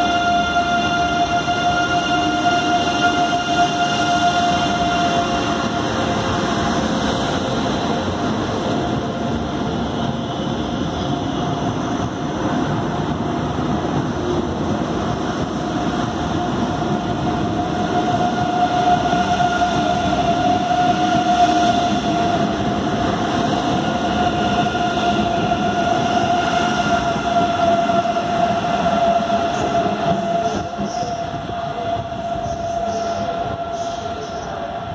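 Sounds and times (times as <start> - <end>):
electric train traction whine: 0.0 - 34.9
train rolling noise: 0.0 - 34.9.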